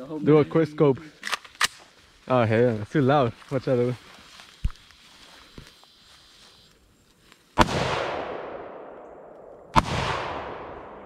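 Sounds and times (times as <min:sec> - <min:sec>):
rifle shots with echo: 0:07.6 - 0:11.0.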